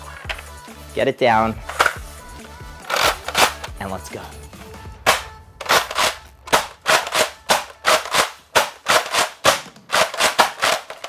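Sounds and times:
sharp plastic clacks: 0:02.8 - 0:03.8, 0:05.0 - 0:11.0.

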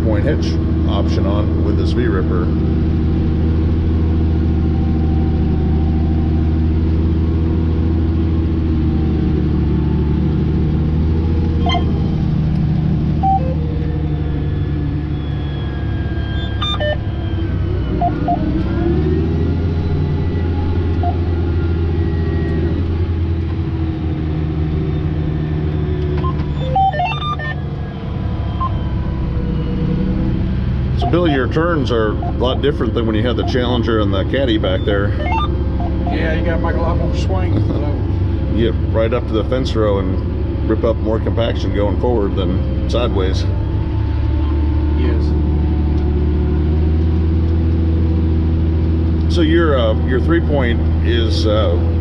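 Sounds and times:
tractor diesel engine under load: 0:00.0 - 0:52.0
short beeps: 0:11.6 - 0:12.1, 0:13.2 - 0:14.0, 0:14.6 - 0:18.6, 0:19.8 - 0:22.7, 0:26.2 - 0:29.0, 0:31.0 - 0:37.2.

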